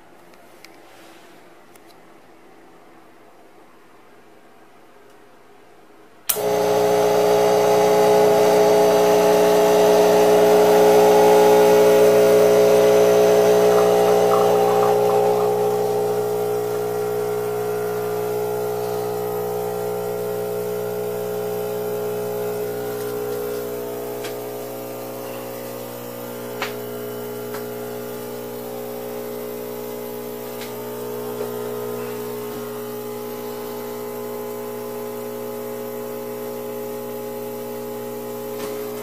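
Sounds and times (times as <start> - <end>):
espresso machine pump humming: 6.3 - 39.0
espresso machine pump click: 7.8 - 34.6.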